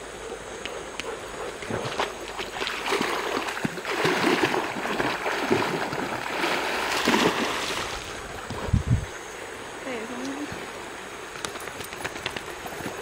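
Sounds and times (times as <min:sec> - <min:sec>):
dog splashing through shallow water: 0:01.6 - 0:08.5.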